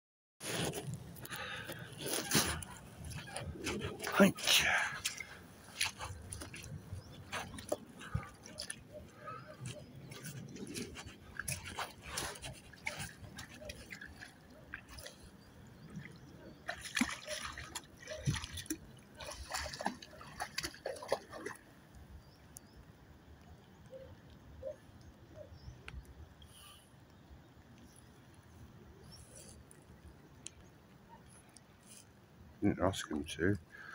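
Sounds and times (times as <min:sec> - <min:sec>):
lake water splashing and sloshing: 0:00.4 - 0:22.6.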